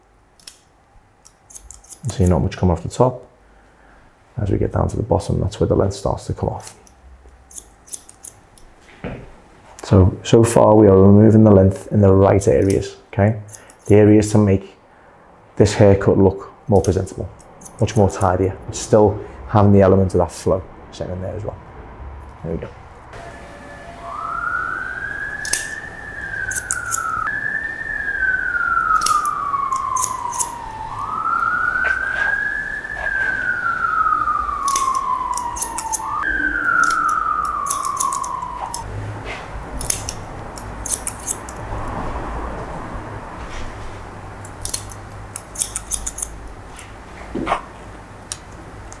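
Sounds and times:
scissors snipping hair: 0.4 - 2.4, 6.6 - 8.7, 16.8 - 18.3, 25.4 - 25.8, 26.5 - 27.1, 29.0 - 30.6, 34.6 - 36.2, 36.8 - 38.8, 39.8 - 41.6, 44.4 - 46.4
siren wailing: 23.1 - 43.5.

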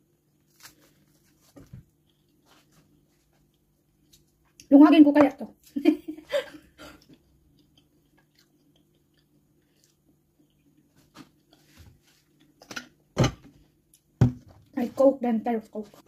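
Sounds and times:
person biting and chewing fruit: 0.2 - 4.7, 7.0 - 12.7.

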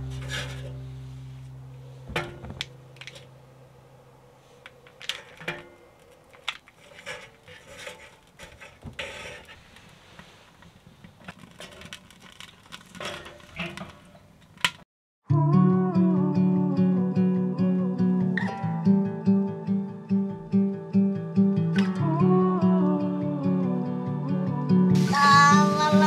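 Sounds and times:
rustling: 0.0 - 14.8.

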